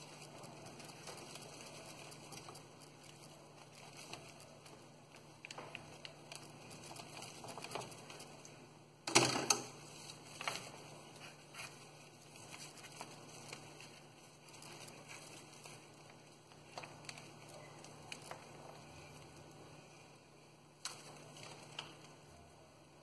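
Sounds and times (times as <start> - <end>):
leaves rustling: 9.8 - 20.1.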